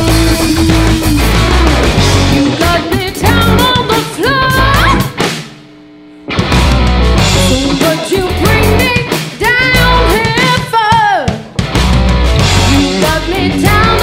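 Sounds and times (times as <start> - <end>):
rock band playing: 0.0 - 14.0
woman singing: 2.2 - 5.2, 7.4 - 11.4, 12.7 - 14.0.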